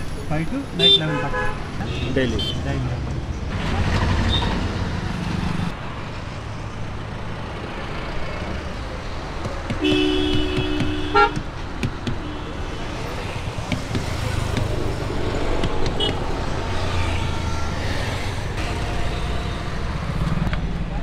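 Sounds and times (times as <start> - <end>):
road traffic: 0.0 - 21.0
vehicle horn honking: 9.8 - 11.4.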